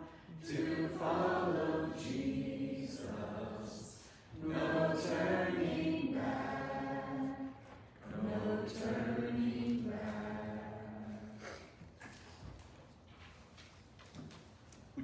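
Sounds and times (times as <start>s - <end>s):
people singing a hymn: 0.0s - 11.8s.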